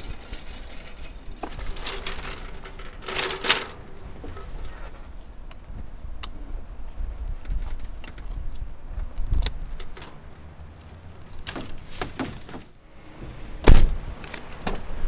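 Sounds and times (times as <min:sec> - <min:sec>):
wheelchair frame rattling: 0:00.0 - 0:05.0, 0:11.2 - 0:12.7
loud thump: 0:13.6 - 0:14.0.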